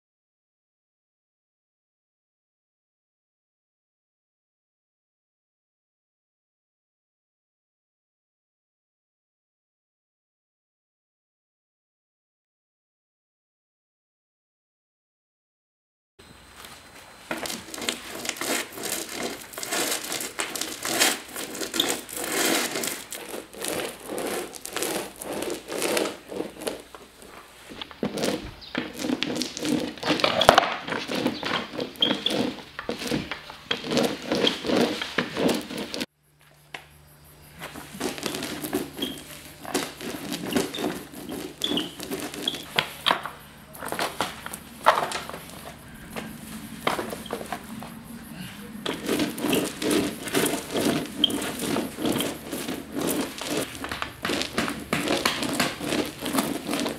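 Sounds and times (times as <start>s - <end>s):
paint roller crackling: 16.5s - 36.6s, 37.5s - 56.9s.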